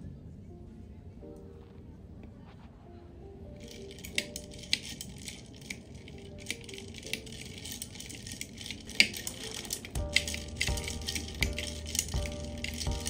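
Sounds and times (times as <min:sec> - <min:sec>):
ice cubes clinking in glass jar: 0:03.7 - 0:13.0.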